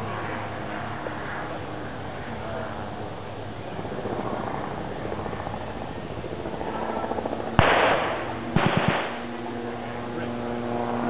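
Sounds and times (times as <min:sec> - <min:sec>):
machine gun burst: 0:07.6 - 0:09.2.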